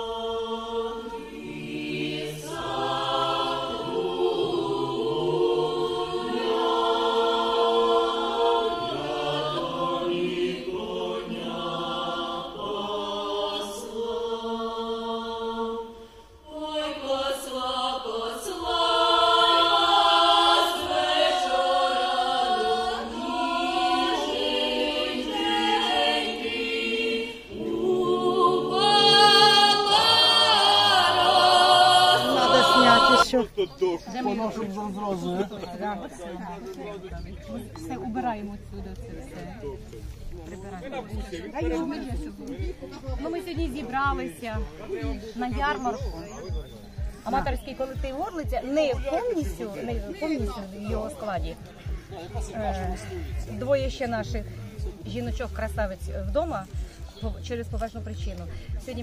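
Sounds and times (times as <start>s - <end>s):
group singing a cappella folk song: 0.0s - 33.4s, 36.6s - 59.0s.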